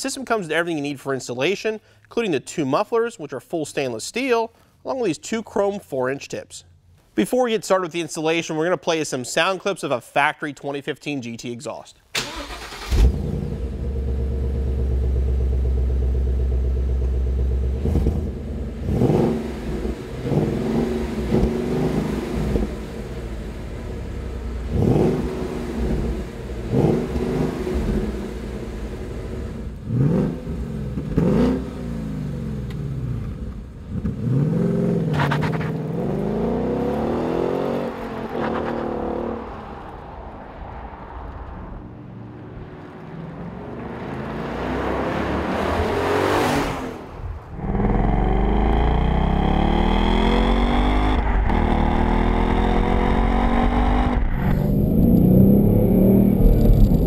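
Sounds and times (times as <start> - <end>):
car driving off: 12.2 - 57.0
car engine idling and revving: 12.2 - 57.0.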